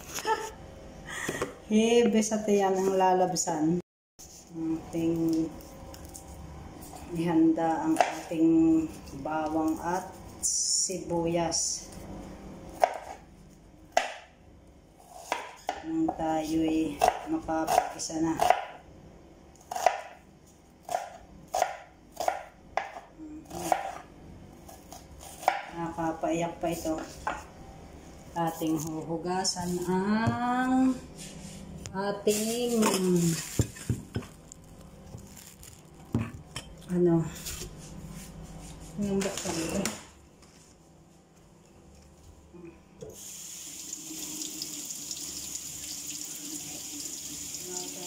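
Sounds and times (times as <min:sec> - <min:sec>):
knife chopping on wooden board: 0:15.1 - 0:15.8, 0:19.7 - 0:20.2, 0:20.9 - 0:23.0, 0:25.2 - 0:25.7.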